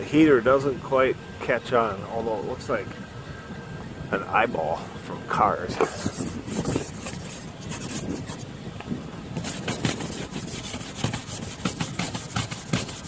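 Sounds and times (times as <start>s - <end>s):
car engine running: 0.0s - 13.0s
ice scraper rasping on window: 5.8s - 8.5s, 9.4s - 13.0s.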